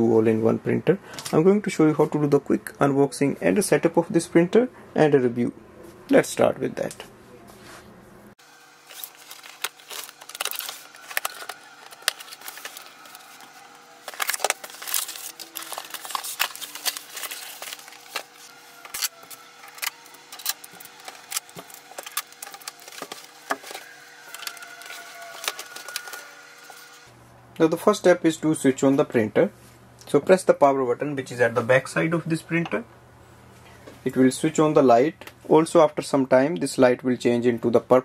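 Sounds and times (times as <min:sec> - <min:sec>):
cardboard and plastic scrapes: 0:08.8 - 0:26.9.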